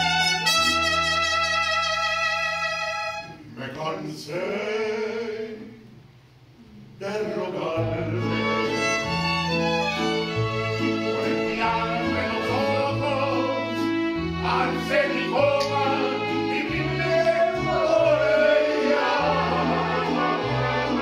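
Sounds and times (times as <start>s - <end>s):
mariachi band playing: 0.0s - 3.6s, 7.2s - 21.0s
man singing: 3.6s - 5.8s, 7.0s - 9.0s, 10.8s - 21.0s.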